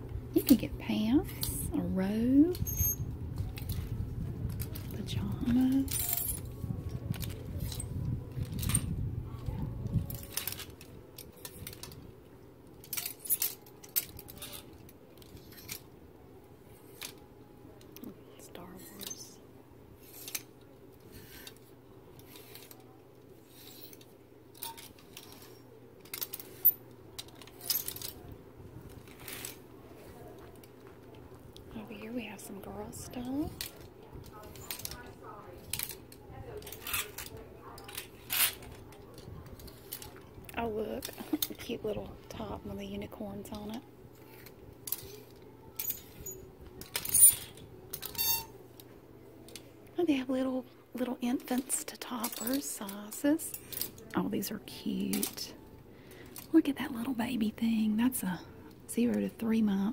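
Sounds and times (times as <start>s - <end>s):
plastic hangers scraping on metal rod: 1.1s - 8.9s, 12.8s - 15.9s, 20.0s - 28.2s, 28.9s - 29.6s, 32.2s - 42.6s, 43.4s - 48.9s.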